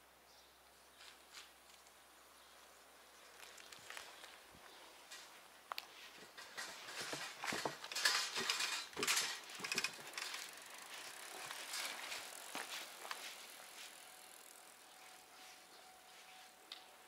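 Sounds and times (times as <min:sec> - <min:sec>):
sharp clicks and rattles: 0:06.3 - 0:12.3.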